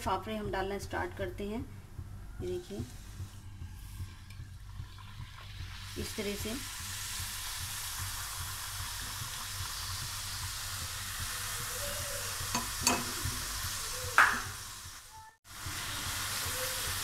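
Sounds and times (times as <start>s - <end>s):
food deep-frying in hot oil: 4.5s - 17.0s.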